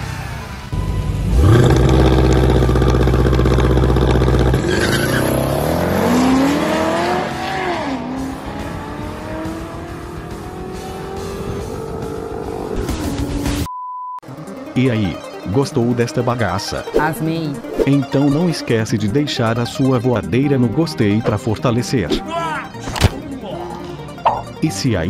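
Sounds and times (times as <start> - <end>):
car engines accelerating: 0.0 - 13.7.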